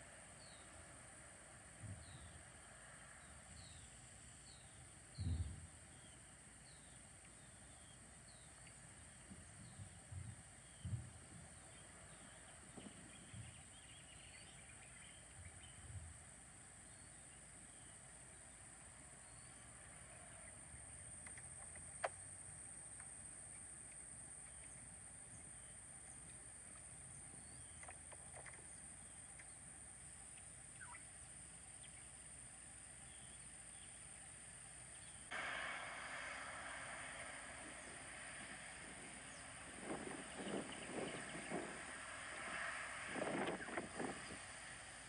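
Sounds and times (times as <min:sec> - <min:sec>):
steady high hiss: 0:00.0 - 0:45.0
soft low thumps: 0:09.2 - 0:11.7
small bird chirping: 0:30.2 - 0:32.2.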